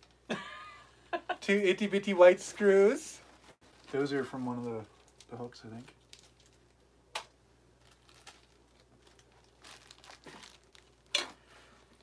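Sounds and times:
plastic zip bag crinkling: 0:03.6 - 0:06.8, 0:07.8 - 0:12.0.

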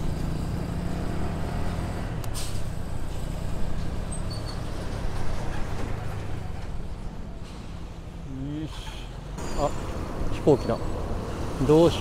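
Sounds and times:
road and traffic noise: 0:00.0 - 0:12.0
vehicle engine humming: 0:00.0 - 0:12.0.

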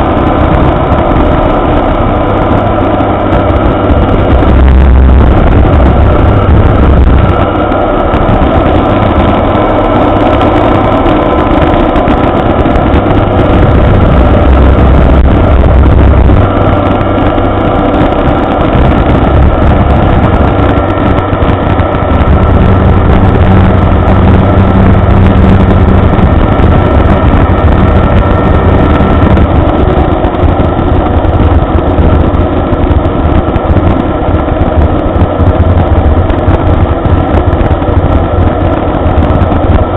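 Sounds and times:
aircraft propeller engine: 0:00.0 - 0:39.9.

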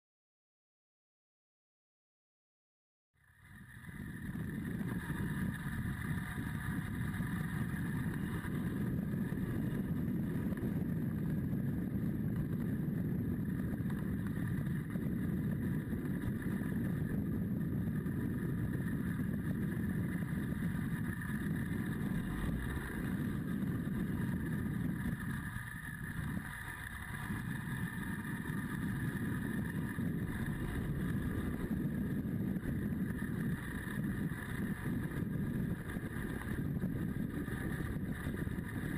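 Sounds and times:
motorcycle engine running: 0:03.2 - 0:38.9
wind and road noise: 0:03.2 - 0:38.9.

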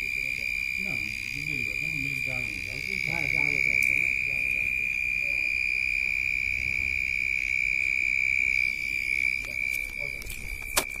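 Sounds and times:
cricket trilling: 0:00.0 - 0:11.0.

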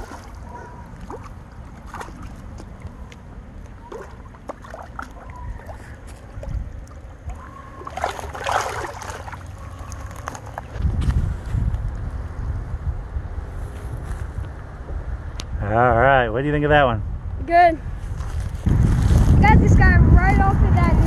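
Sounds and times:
fish splashing in shallow water: 0:00.0 - 0:10.9
wind rumble on microphone: 0:05.3 - 0:21.0.

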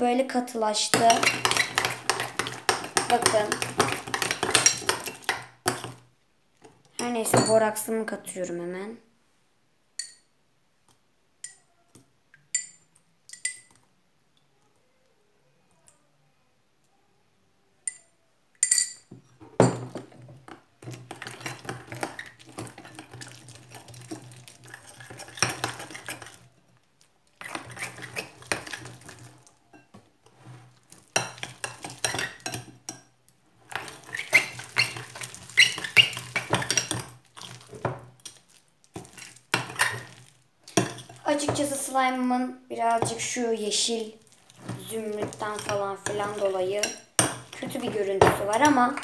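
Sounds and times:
metal spoon scraping glass bowl: 0:00.9 - 0:06.0, 0:20.9 - 0:26.4, 0:27.4 - 0:32.7, 0:33.7 - 0:38.4, 0:39.0 - 0:41.6, 0:44.5 - 0:49.0.

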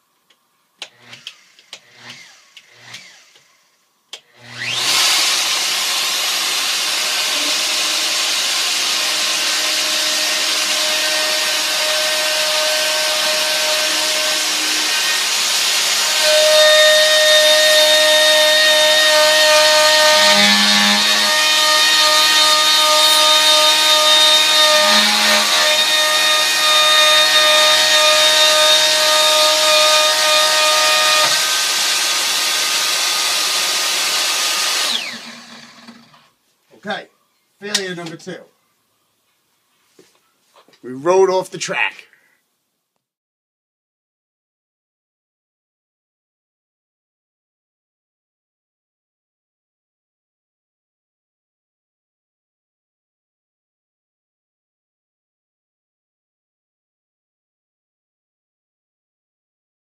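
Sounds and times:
router whining: 0:00.8 - 0:36.4.

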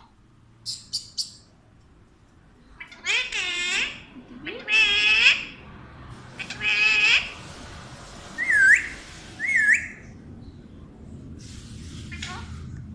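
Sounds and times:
parrot calling: 0:00.6 - 0:01.5, 0:02.8 - 0:05.6, 0:06.4 - 0:07.4, 0:08.4 - 0:10.1, 0:12.1 - 0:12.6
parrot whistles: 0:08.4 - 0:10.1.

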